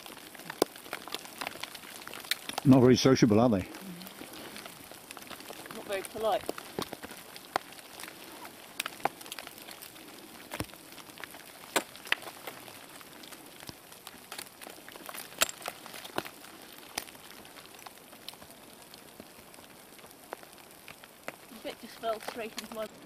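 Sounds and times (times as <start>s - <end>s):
faint steady hiss: 0.0s - 23.0s
ice axe striking snow-ice: 11.5s - 12.6s, 14.3s - 17.1s.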